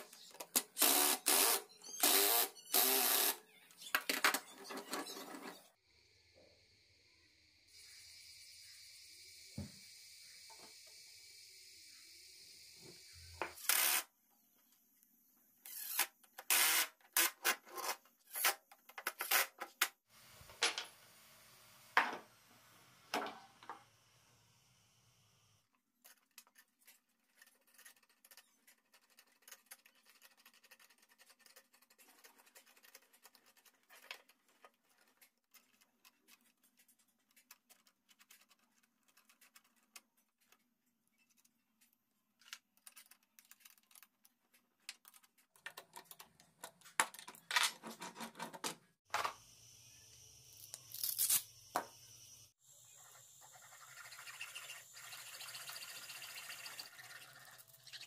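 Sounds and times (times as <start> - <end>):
faint metallic clicks and scrapes: 26.0 - 48.7.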